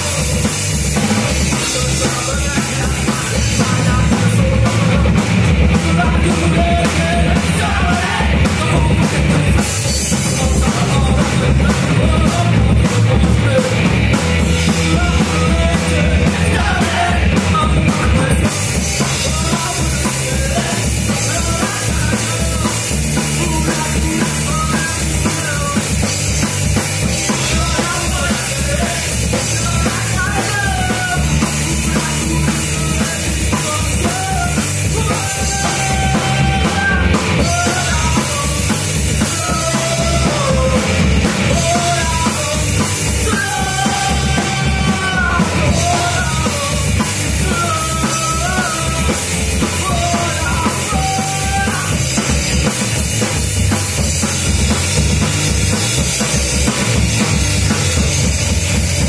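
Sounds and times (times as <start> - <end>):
electric bass: 0.0 - 59.0
electric guitar: 0.0 - 59.0
pounding drum kit: 0.0 - 59.0
person singing into microphone: 1.3 - 13.9, 27.2 - 52.3.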